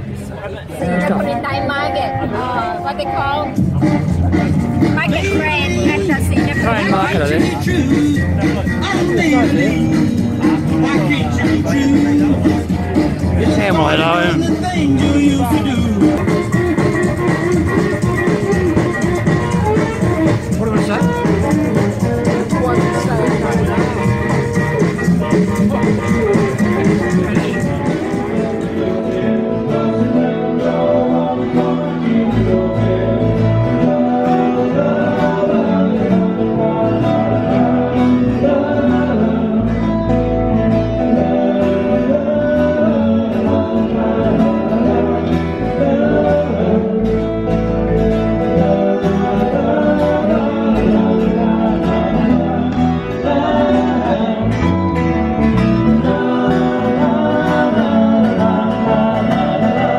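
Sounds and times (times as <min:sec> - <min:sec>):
bass guitar: 0:00.0 - 0:59.9
guitars: 0:00.0 - 0:59.9
person singing: 0:05.0 - 0:55.0, 0:55.8 - 0:59.9.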